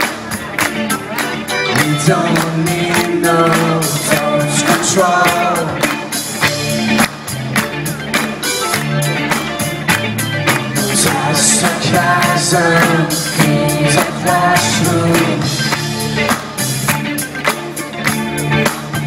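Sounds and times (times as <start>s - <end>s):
rock band playing: 0.0s - 19.0s
person singing: 1.7s - 6.2s, 10.6s - 16.1s.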